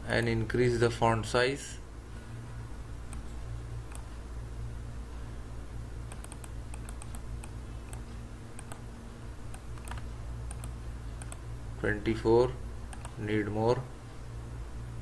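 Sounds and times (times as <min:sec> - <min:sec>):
steady low hum: 0:00.0 - 0:15.0
mouse and keyboard clicks: 0:06.1 - 0:08.8, 0:09.5 - 0:11.4, 0:12.9 - 0:13.2.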